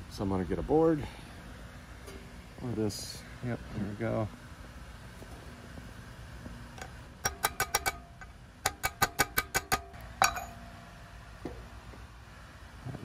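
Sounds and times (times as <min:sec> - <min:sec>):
hammer tapping on metal: 0:06.8 - 0:10.6.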